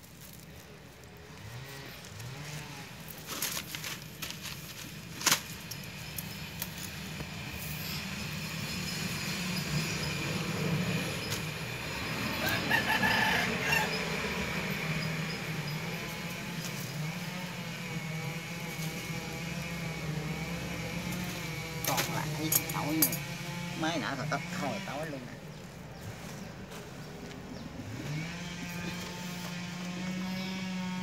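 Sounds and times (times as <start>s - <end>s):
rooster crowing: 12.2s - 14.8s
wire-mesh traps rattling: 21.8s - 23.4s.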